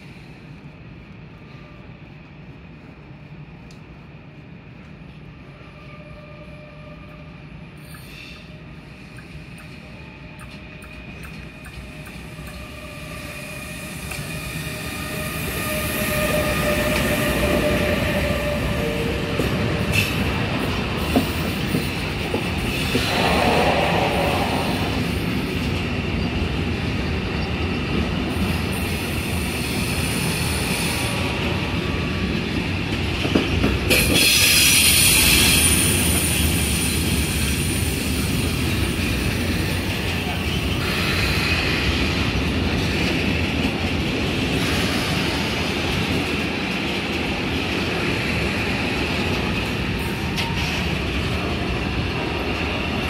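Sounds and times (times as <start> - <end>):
freight train wheels rumbling: 0.0 - 53.0
wheels screeching: 22.6 - 25.6.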